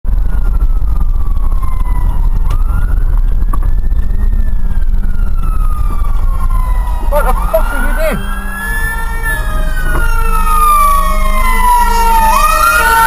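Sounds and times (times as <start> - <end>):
low engine and road rumble: 0.0 - 13.0
fire engine siren wailing: 0.1 - 13.0.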